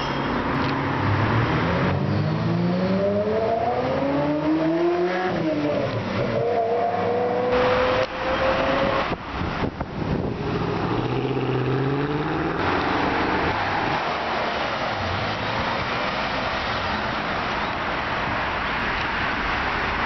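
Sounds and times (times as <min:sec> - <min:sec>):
road noise: 0:00.0 - 0:20.0
sports car driving by: 0:10.1 - 0:16.8
car engine accelerating: 0:10.2 - 0:15.5.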